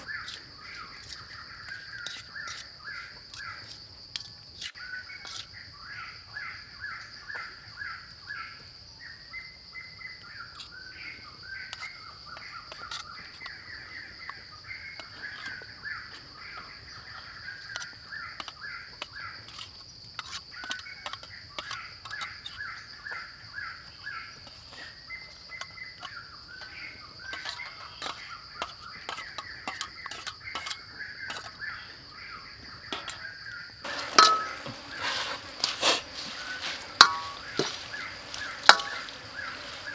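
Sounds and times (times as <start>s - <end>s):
birds calling: 0.0s - 3.8s, 20.5s - 39.9s
high insect drone: 0.0s - 39.9s
utensil clinking in metal wok: 33.9s - 34.7s.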